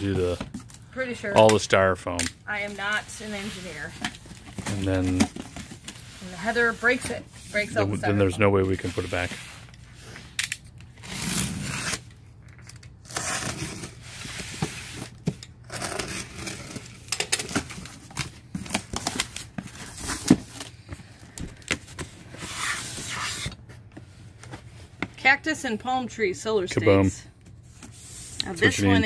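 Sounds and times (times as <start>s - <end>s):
box cutter slitting tape: 10.4s - 12.1s, 12.7s - 17.9s
cardboard tearing and crackling: 11.0s - 12.1s, 13.0s - 15.0s, 15.6s - 20.6s.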